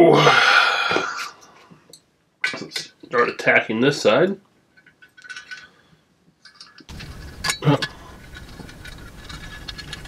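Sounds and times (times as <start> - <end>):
steady background hiss: 0.0 - 10.0
bit driver clicking and scraping: 6.9 - 10.0.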